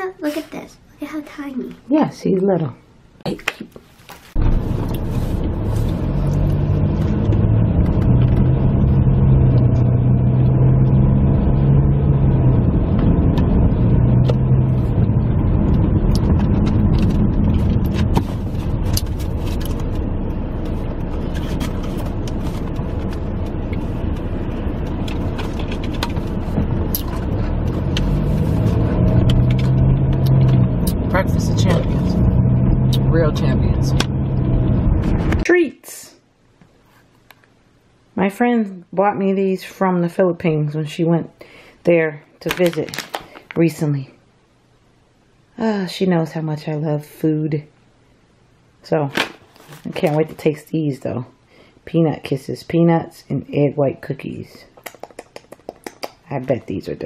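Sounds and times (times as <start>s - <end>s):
car engine and road noise: 4.3s - 35.5s.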